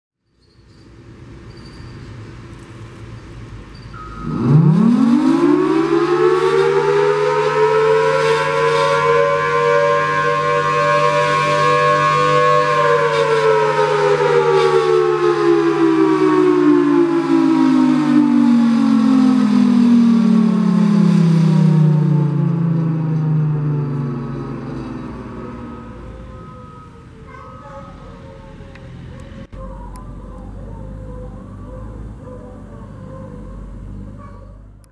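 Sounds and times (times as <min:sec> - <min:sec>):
warning siren wailing: 0:04.0 - 0:34.9
low hum: 0:16.4 - 0:34.9.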